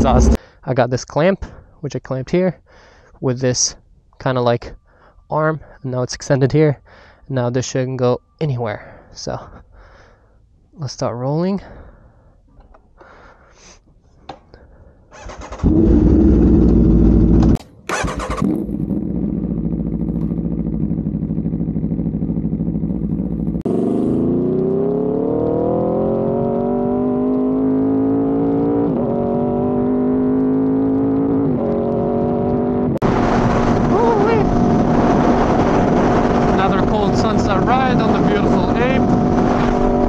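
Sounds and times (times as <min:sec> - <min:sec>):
motorcycle engine revving: 0:00.0 - 0:00.4, 0:15.2 - 0:40.0.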